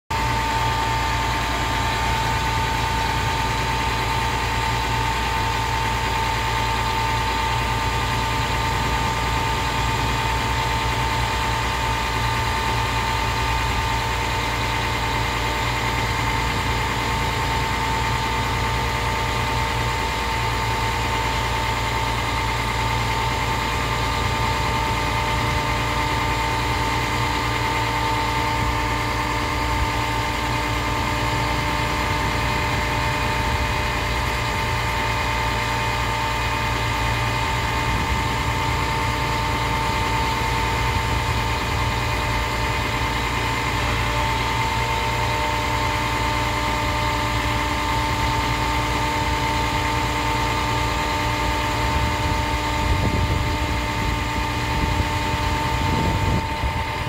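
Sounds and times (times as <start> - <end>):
diesel engine running: 0.0 - 57.0
hydraulic whine: 0.1 - 57.0.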